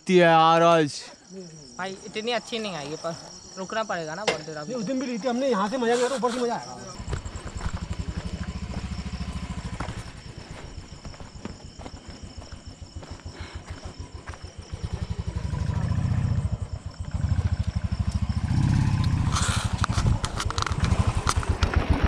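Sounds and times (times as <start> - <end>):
motorcycle engine idling: 7.0 - 22.0
short hiss: 19.3 - 19.8.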